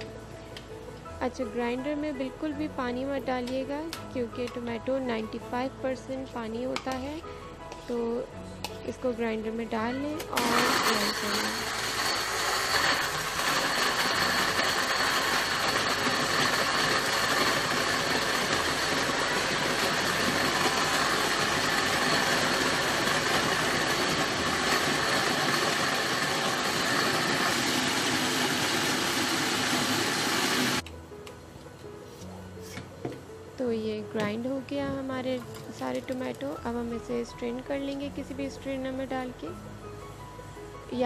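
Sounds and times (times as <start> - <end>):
blender motor grinding: 10.4 - 30.8.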